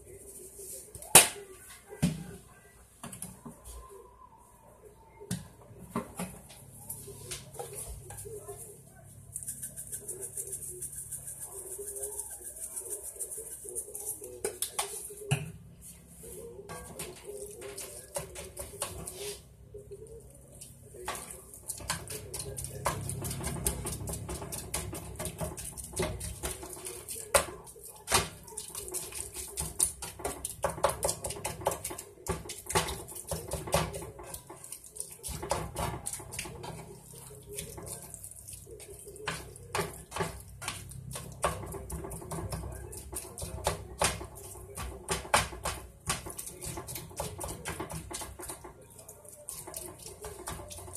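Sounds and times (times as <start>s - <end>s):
spatula scraping cast iron skillet: 15.8s - 19.5s, 21.0s - 50.9s.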